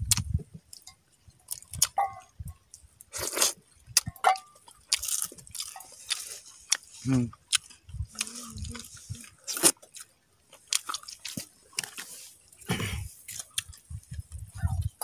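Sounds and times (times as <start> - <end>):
mouth clicks and smacks: 0.0 - 0.4
person chewing wet food: 0.0 - 15.0.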